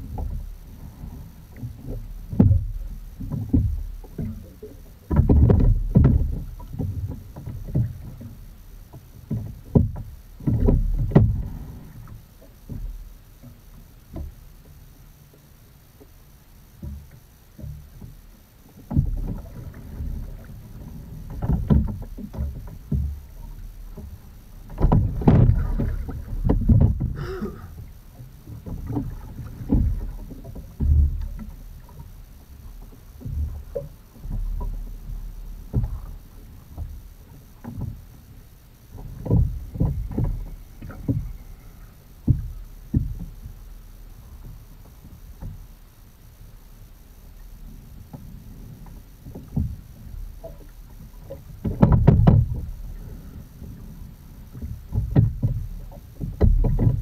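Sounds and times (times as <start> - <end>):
oars working through water: 0.0 - 57.0
water splashing against a hull: 0.0 - 57.0.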